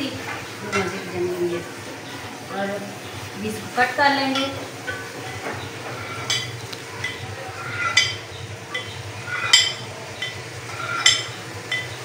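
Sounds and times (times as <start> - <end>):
knife clinking against glass: 7.8 - 10.4, 11.0 - 11.9.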